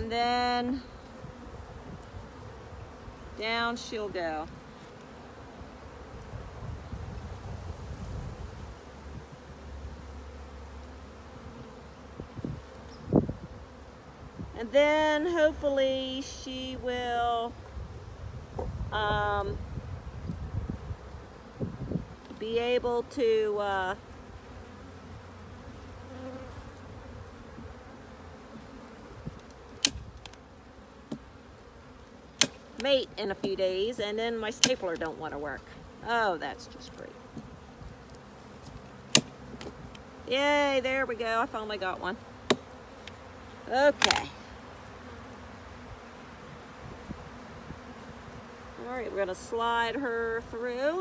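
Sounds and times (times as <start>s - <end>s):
honeybees buzzing: 0.0s - 51.0s.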